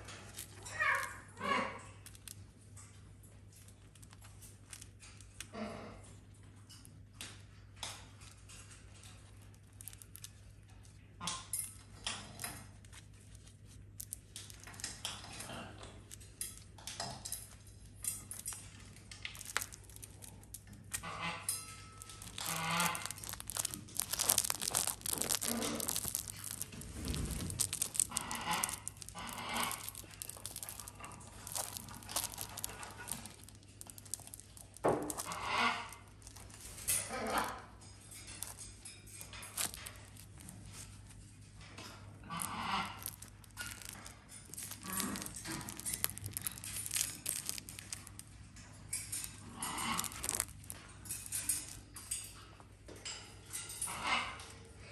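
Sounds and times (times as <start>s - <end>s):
parrot chewing fabric toy: 8.0s - 48.3s, 48.9s - 51.8s.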